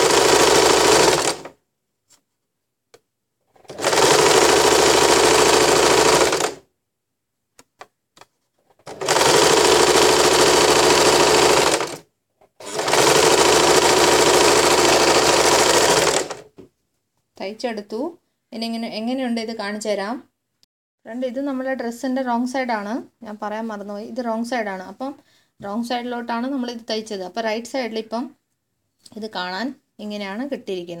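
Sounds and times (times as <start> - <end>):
sewing machine running: 0.0 - 1.6, 3.6 - 6.6, 8.9 - 12.0, 12.6 - 16.5.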